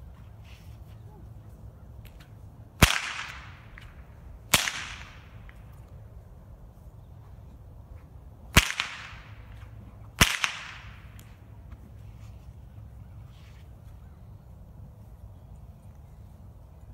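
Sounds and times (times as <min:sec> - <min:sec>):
whip cracking: 0:02.0 - 0:05.9, 0:08.5 - 0:11.4.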